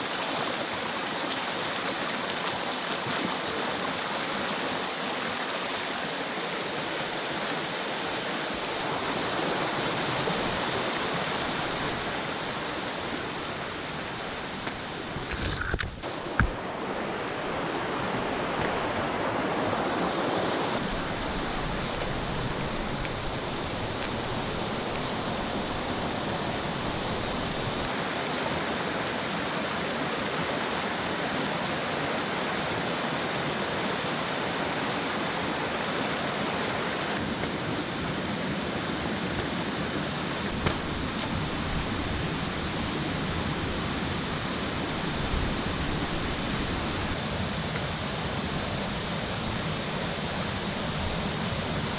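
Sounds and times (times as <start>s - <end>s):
stream rushing over stones: 0.0s - 50.2s.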